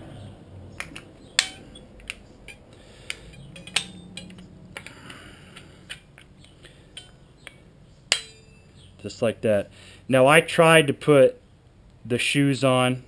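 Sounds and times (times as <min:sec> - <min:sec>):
light metallic clicks and clinks: 0:00.8 - 0:08.8.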